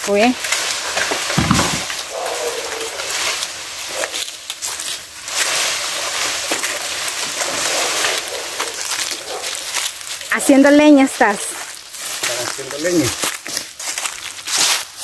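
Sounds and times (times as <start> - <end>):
footsteps through dry leaves: 0.0 - 15.0
twigs crackling underfoot: 0.0 - 15.0.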